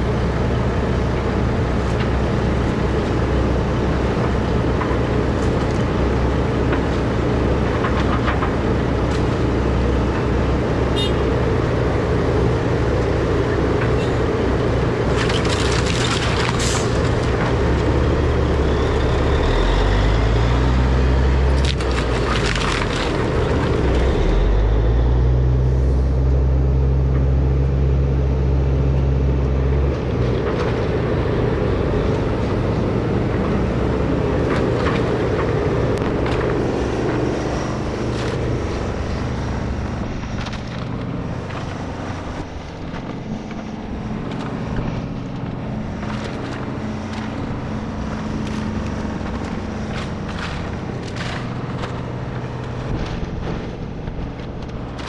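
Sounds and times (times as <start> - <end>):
excavator diesel engine: 0.0 - 55.0
debris knocking and cracking: 14.9 - 18.6, 21.5 - 24.0.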